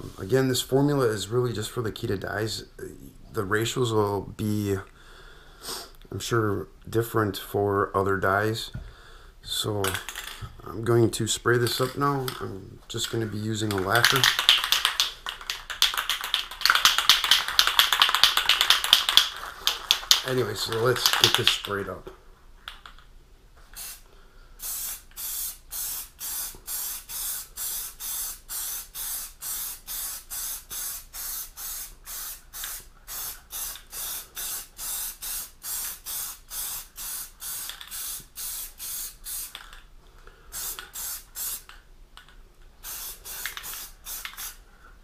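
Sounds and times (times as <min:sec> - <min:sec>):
aerosol can spraying in pulses: 0:13.7 - 0:21.6, 0:42.8 - 0:44.6.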